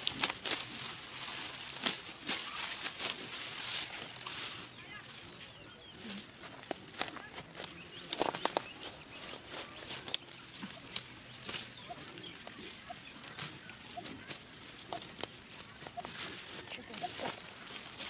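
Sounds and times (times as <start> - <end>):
grass stalks snapping: 0.0 - 3.9, 6.8 - 8.8
leaves swishing and rustling: 0.0 - 5.6, 6.2 - 18.0.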